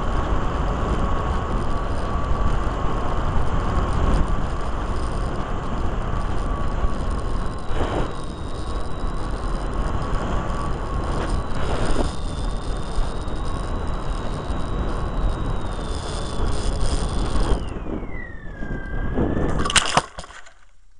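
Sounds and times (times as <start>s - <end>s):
wind rush on microphone: 0.0s - 20.4s
electric motor and propeller whine: 0.0s - 20.5s.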